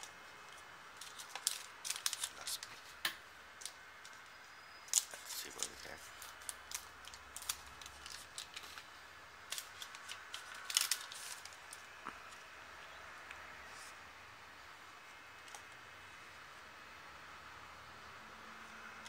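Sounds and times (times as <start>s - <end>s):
foil packs crinkling and clicking: 0.0s - 2.8s, 4.9s - 8.9s, 9.5s - 12.4s.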